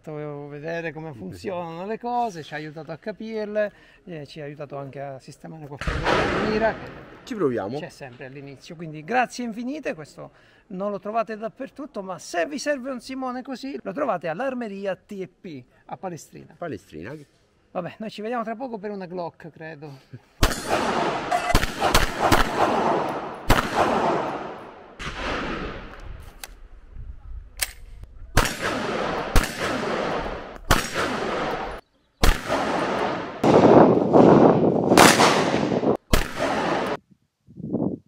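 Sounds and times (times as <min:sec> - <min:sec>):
rifle shots echoing: 0:05.8 - 0:07.5, 0:20.4 - 0:26.0, 0:28.4 - 0:37.0.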